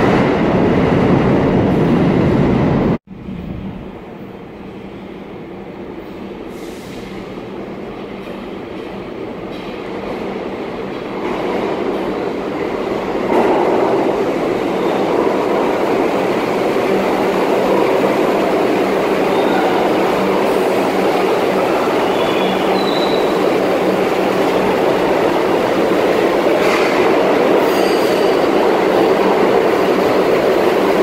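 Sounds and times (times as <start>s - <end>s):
subway train rumbling: 0.0s - 31.0s
faint wheel squeal: 22.1s - 23.3s.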